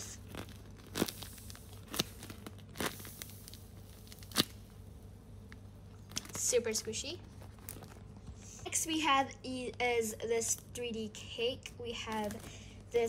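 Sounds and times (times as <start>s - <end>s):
paper and tape crackling: 0.0s - 4.8s, 5.4s - 8.4s, 11.9s - 13.0s
soft paper rustling: 5.9s - 8.6s, 12.0s - 13.0s.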